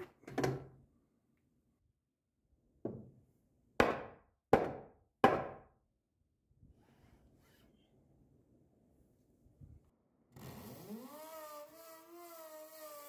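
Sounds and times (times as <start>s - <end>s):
hammer striking wood: 3.8s - 5.7s.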